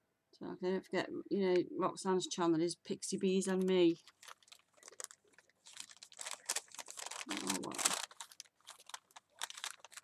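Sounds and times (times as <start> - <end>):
paper crackling and rustling: 3.6 - 10.0.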